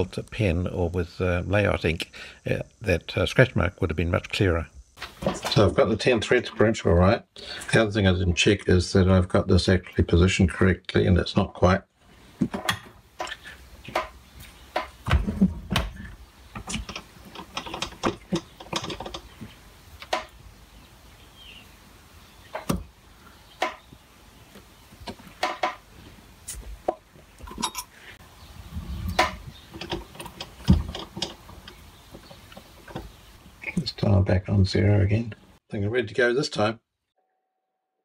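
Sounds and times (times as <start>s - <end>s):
dull knocks: 13.9s - 19.2s.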